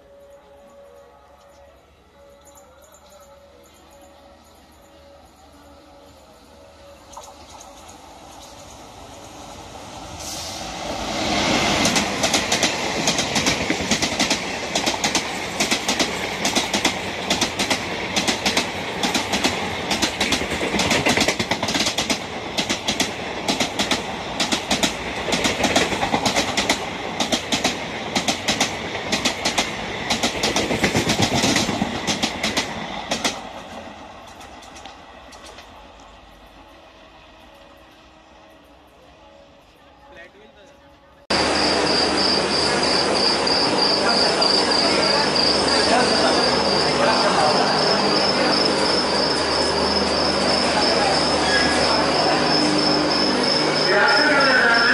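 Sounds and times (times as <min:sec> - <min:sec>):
locomotive rushing past: 0:03.7 - 0:39.6, 0:41.3 - 0:54.9
train wheels clickety-clack: 0:07.1 - 0:09.3, 0:10.2 - 0:36.6.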